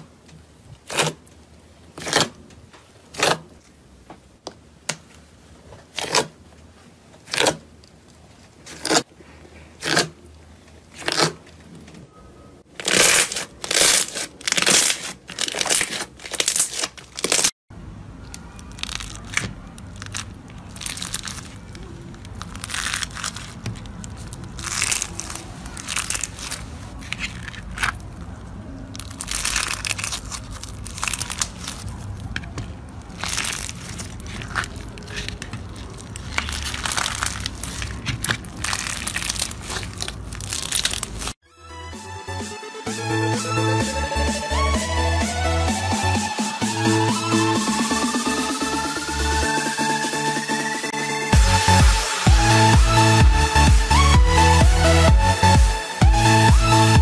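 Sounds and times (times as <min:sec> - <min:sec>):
sponges crunching: 0:07.2 - 0:11.8, 0:12.7 - 0:17.5, 0:18.3 - 0:41.4
slime popping: 0:18.6 - 0:28.2, 0:28.9 - 0:41.3.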